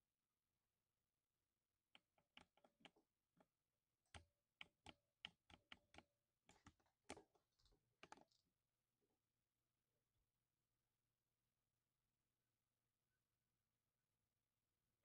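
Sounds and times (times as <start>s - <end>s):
mechanical keyboard typing: 4.1s - 7.3s.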